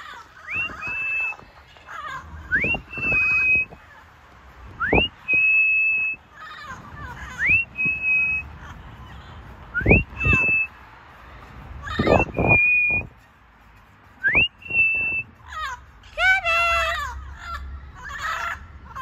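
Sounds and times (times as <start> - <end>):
person whistling: 0.5 - 1.4, 2.5 - 3.7, 4.8 - 6.2, 9.8 - 10.7, 12.2 - 13.1, 14.2 - 15.3.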